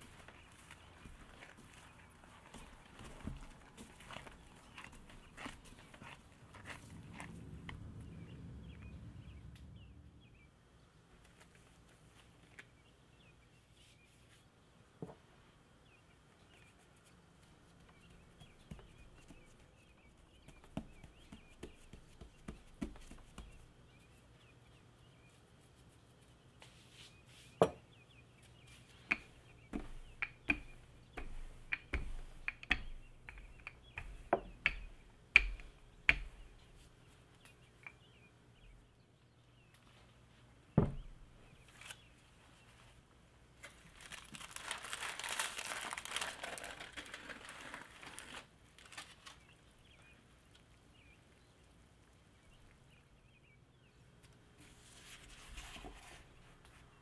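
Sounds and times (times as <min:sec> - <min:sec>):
rolling pin on wooden board: 0:29.1 - 0:36.4.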